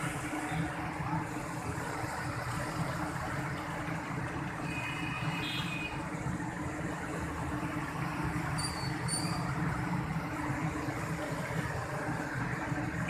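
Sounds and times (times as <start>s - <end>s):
motorcycle engines running: 0.0s - 13.0s
rain and churning water: 0.0s - 13.0s.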